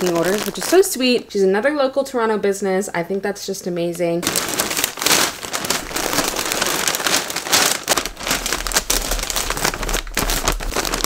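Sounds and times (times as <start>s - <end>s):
paper bag crinkling: 0.0s - 1.2s, 4.2s - 11.0s.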